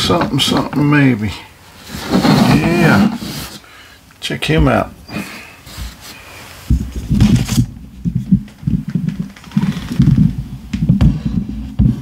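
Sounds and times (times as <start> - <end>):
phone handling rubbing and bumping: 6.7 - 12.0.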